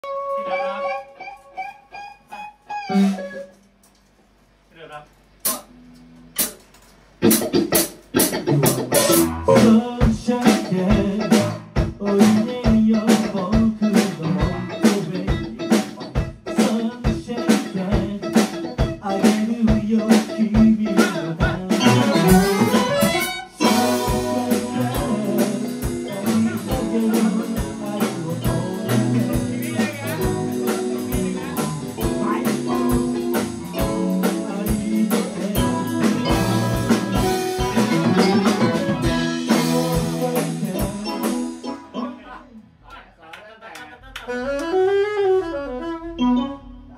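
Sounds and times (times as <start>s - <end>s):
electric guitar: 0.0s - 3.6s, 7.2s - 42.1s
drum kit beats: 0.0s - 4.2s, 5.4s - 42.8s
keyboard: 17.3s - 42.6s, 44.3s - 46.9s.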